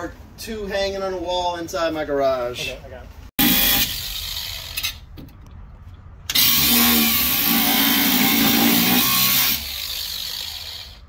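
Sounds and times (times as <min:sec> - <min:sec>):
angle grinder cutting steel: 0:03.4 - 0:05.0, 0:06.3 - 0:11.0.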